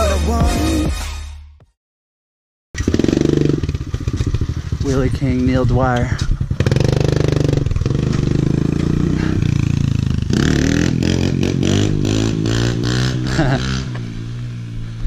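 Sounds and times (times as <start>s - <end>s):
small motorbike engine revving: 2.8s - 5.4s, 6.2s - 15.0s.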